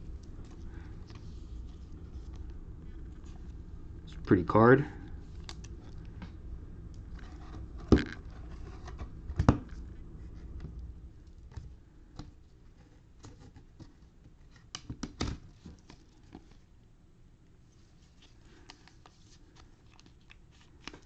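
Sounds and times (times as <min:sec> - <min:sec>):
cards and wrappers handled: 0:05.2 - 0:06.2, 0:17.8 - 0:21.0.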